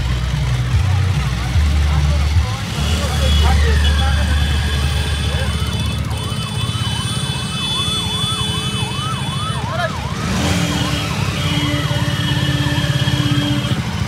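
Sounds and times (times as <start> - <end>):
motorcycle engines riding past: 0.0 - 14.0
horn blasts: 2.6 - 14.0
siren wailing: 3.1 - 14.0.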